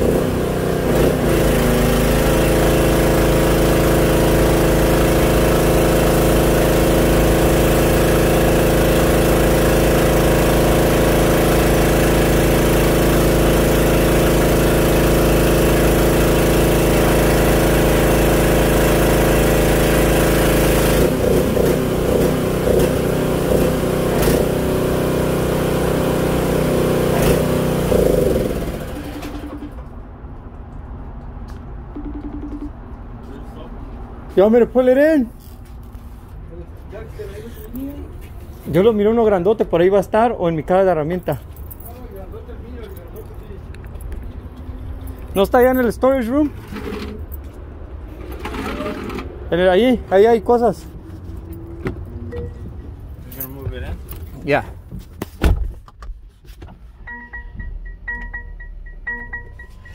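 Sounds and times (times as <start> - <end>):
engine running: 0.0 - 34.3.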